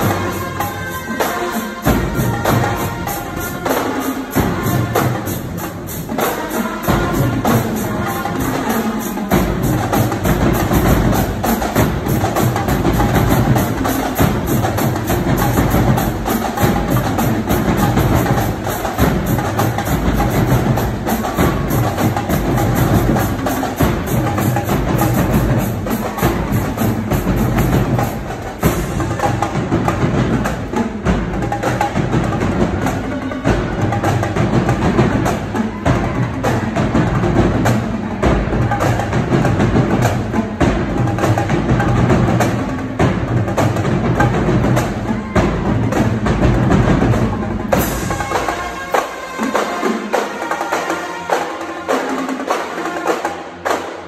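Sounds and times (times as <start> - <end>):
snare drums: 0.0 - 54.0
tenor drums: 0.0 - 54.0
bass drums: 9.3 - 48.9.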